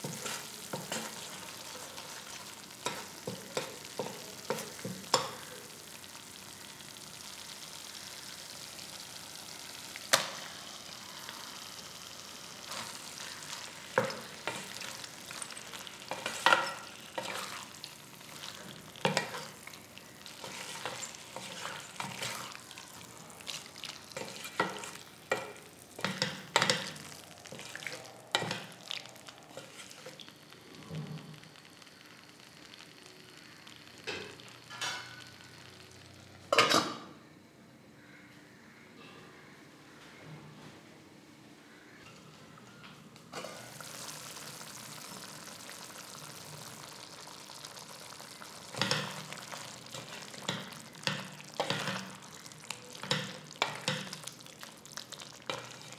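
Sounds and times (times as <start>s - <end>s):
prawns sizzling in a pan: 0.0s - 36.9s, 43.3s - 55.9s
wooden spatula scraping a pan: 20.4s - 22.6s, 24.2s - 25.0s, 29.5s - 30.2s.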